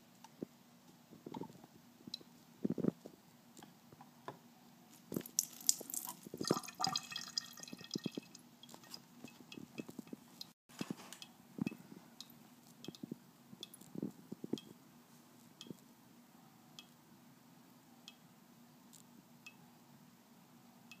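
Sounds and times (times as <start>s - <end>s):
water drips: 5.2s - 8.9s
water trickling from a faucet: 5.2s - 8.9s.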